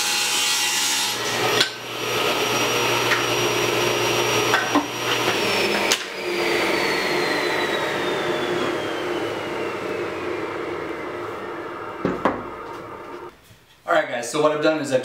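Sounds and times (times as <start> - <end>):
table saw cutting wood: 0.0 - 13.3
saw blade spinning down whine: 1.4 - 13.3
knocks: 12.0 - 12.5.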